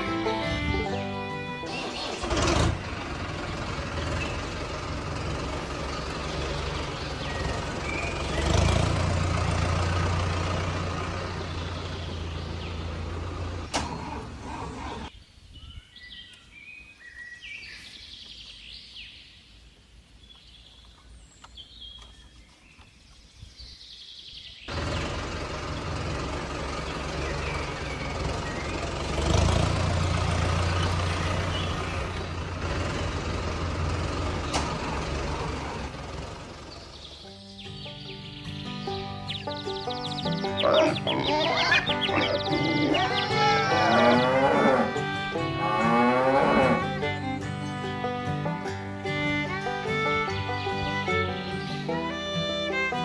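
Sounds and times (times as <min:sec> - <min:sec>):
birds chirping: 0:00.3 - 0:53.0
toy tractor humming: 0:41.6 - 0:48.4.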